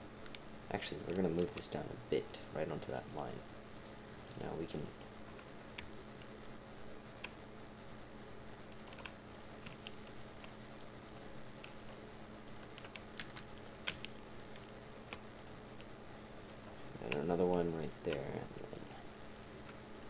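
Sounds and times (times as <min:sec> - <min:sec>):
faint steady hum: 0:00.0 - 0:20.0
keyboard keys clicking: 0:00.3 - 0:01.7, 0:08.7 - 0:15.9, 0:17.0 - 0:20.0
mouse buttons clicking: 0:08.7 - 0:15.9.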